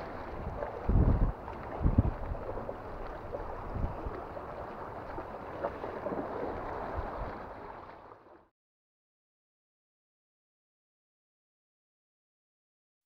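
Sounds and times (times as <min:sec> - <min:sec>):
wind buffeting microphone: 0:00.0 - 0:07.6
water washing against rocks: 0:00.0 - 0:07.9.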